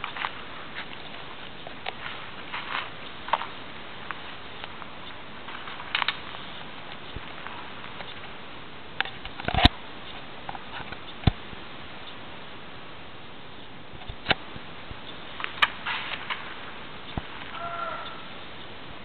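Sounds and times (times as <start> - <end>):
clicks and rustles: 0.0 - 8.4, 9.0 - 11.4, 15.1 - 17.6
steady hiss: 0.0 - 19.0.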